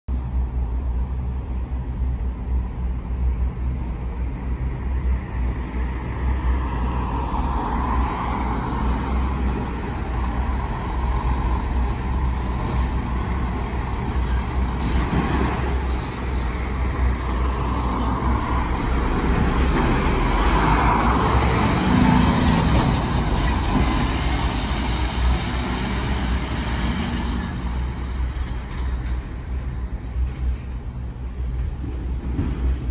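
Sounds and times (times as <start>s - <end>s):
lorry diesel engine driving off: 8.4s - 28.0s.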